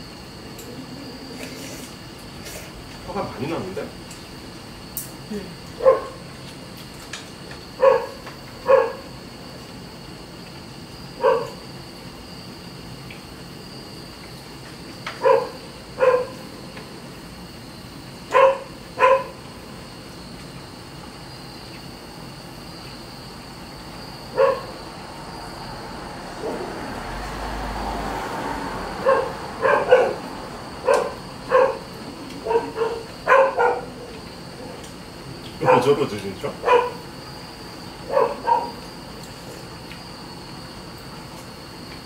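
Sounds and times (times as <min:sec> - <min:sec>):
insects chirring: 0:00.0 - 0:42.0
dog barking: 0:05.8 - 0:06.2, 0:07.8 - 0:09.1, 0:11.2 - 0:11.6, 0:15.2 - 0:16.4, 0:18.3 - 0:19.4, 0:24.3 - 0:24.8, 0:29.0 - 0:34.1, 0:35.6 - 0:36.0, 0:36.6 - 0:37.1, 0:38.1 - 0:38.8.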